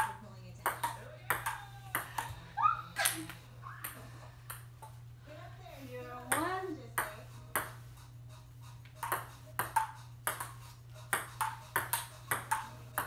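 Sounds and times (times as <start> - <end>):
ping pong ball clicking: 0.0 - 2.3, 9.0 - 13.0.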